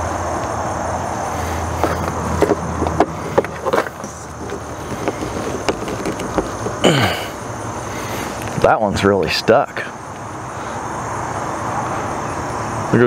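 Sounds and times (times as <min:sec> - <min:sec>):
screwdriver clicking and scraping: 0:01.8 - 0:06.8.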